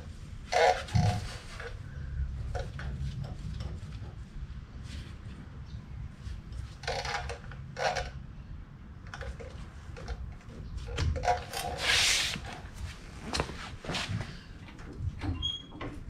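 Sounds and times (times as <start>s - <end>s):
glove rubbing on tyre: 11.7s - 12.8s.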